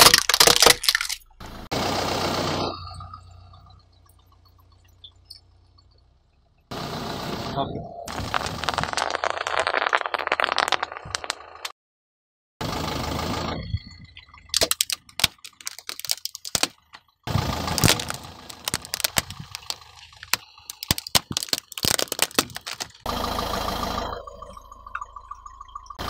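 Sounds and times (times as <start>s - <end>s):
plastic keyboard cracking and snapping: 0.0s - 1.2s, 14.6s - 16.7s, 17.7s - 23.0s
low car rumble: 1.2s - 9.4s, 16.7s - 26.0s
bubble wrap popping under tyre: 8.1s - 11.4s, 14.6s - 16.7s, 17.6s - 23.1s.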